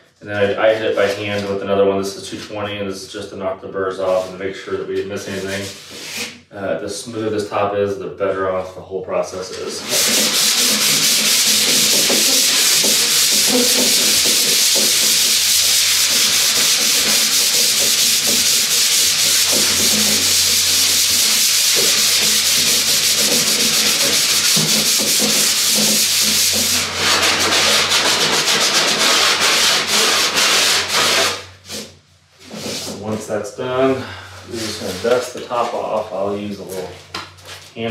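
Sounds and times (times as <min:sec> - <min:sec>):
sandpaper rasping on wood: 0:09.7 - 0:31.9.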